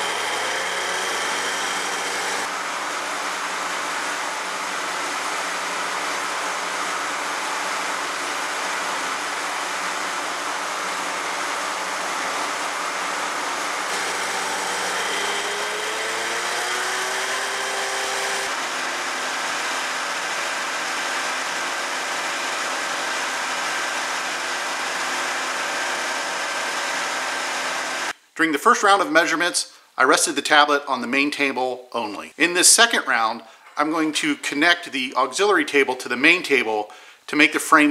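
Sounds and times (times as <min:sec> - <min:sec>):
motor whine rising in pitch: 0:00.0 - 0:02.5, 0:13.9 - 0:22.2
machine whirring hum: 0:00.0 - 0:04.1, 0:07.4 - 0:28.1.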